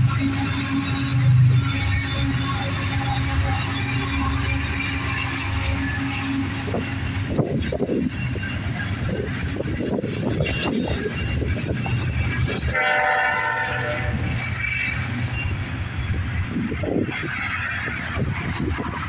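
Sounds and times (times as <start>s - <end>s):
train wheels rumbling on rail: 0.0s - 19.0s
train horn: 12.6s - 14.4s.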